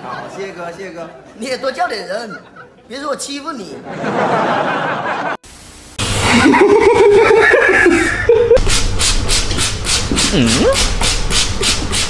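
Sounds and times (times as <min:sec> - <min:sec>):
people laughing: 0:00.0 - 0:05.4, 0:06.2 - 0:08.6.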